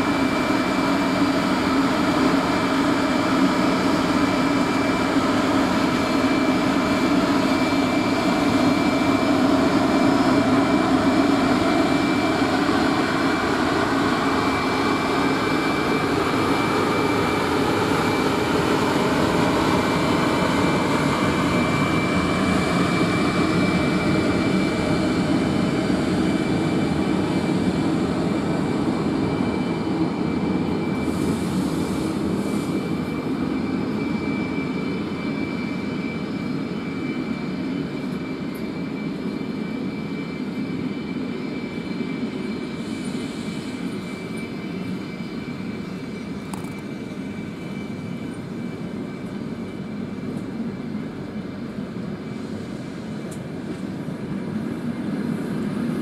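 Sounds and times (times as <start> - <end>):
train coaches rolling past: 0.0 - 39.8
electric locomotive whine: 0.0 - 56.0.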